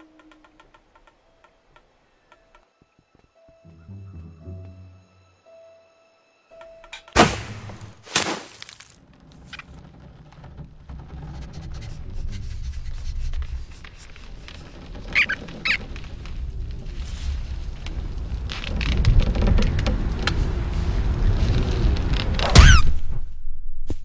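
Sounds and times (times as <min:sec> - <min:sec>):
short squeaks: 0:14.4 - 0:16.2.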